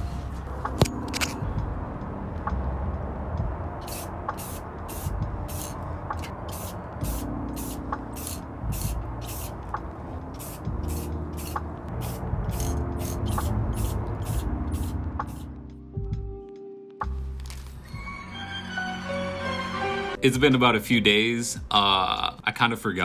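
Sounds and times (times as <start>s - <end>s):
aerosol spray hissing bursts: 3.8s - 5.8s, 6.5s - 9.6s, 10.4s - 15.5s.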